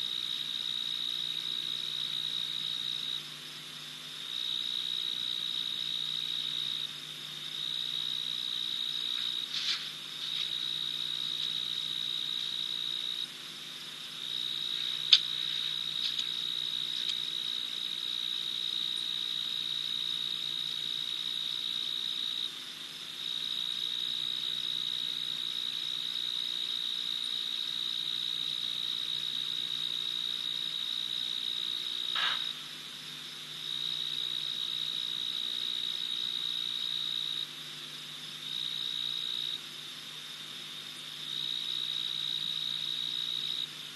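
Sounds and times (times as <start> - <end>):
cricket trilling: 0.0 - 43.9
sharp click: 32.2 - 32.5.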